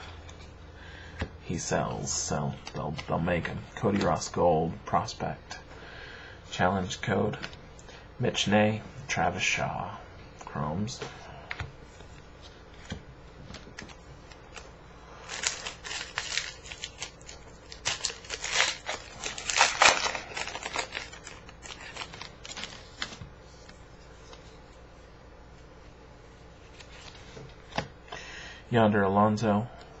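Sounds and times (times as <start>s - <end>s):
cards being handled: 11.5s - 24.6s, 26.6s - 27.9s
foil wrapper crinkling and tearing: 14.3s - 23.2s.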